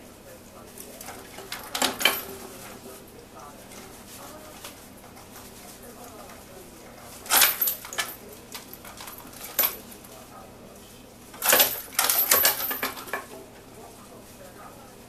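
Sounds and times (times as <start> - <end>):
metal chain rattling and clinking: 1.0 - 2.8, 7.2 - 10.0, 11.4 - 13.3.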